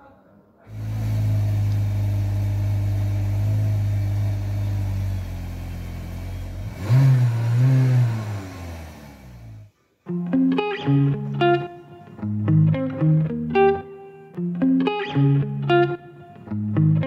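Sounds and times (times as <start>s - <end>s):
car engine idling: 0.8s - 9.7s.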